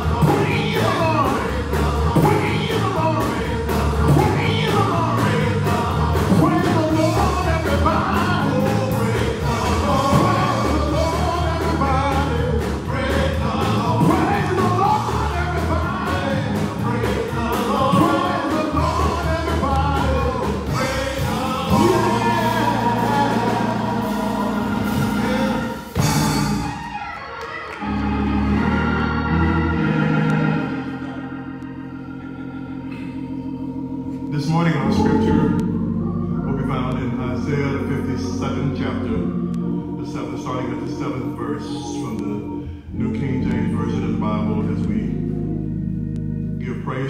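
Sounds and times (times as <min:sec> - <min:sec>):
men singing gospel: 0:00.0 - 0:26.4, 0:34.4 - 0:45.1
instrumental backing with beat: 0:00.0 - 0:27.0
organ sustained chords: 0:00.0 - 0:47.0.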